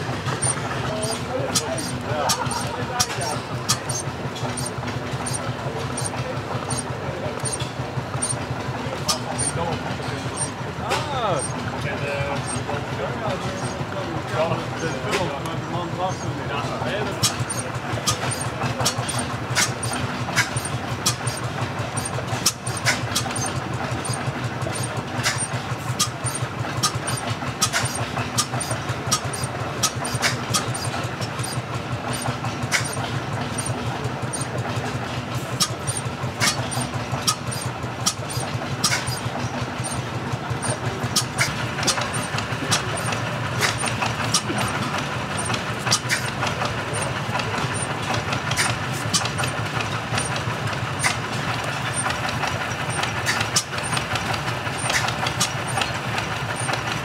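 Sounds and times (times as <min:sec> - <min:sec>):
engines droning: 0:00.0 - 0:57.0
sharp clicks: 0:00.2 - 0:08.4, 0:17.2 - 0:34.6, 0:35.6 - 0:57.0.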